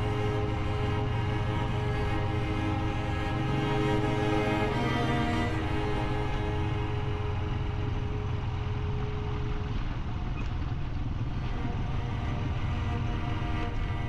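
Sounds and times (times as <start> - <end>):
background music: 0.0 - 8.0
vehicle rumbling: 0.0 - 14.0.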